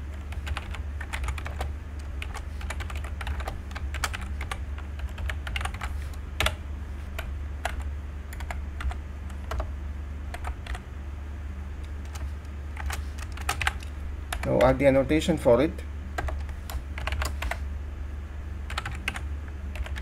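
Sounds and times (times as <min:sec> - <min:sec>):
keyboard typing: 0:00.0 - 0:06.6, 0:07.2 - 0:09.7, 0:10.3 - 0:10.8, 0:11.8 - 0:14.8, 0:16.2 - 0:17.6, 0:18.7 - 0:20.0
low electrical hum: 0:00.0 - 0:20.0.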